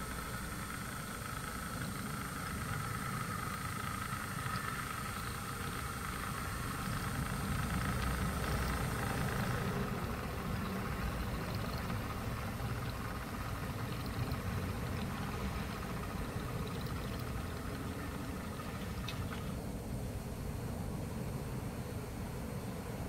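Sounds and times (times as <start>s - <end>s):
model trains rumbling: 0.0s - 23.0s.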